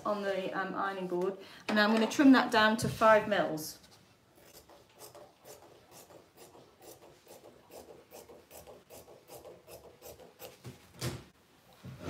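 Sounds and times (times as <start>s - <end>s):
scissors snipping fabric: 4.4s - 10.6s.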